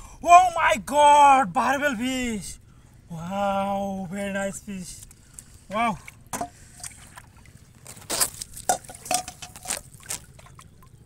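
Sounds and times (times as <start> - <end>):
water splashing in metal bowl: 8.2 - 11.0.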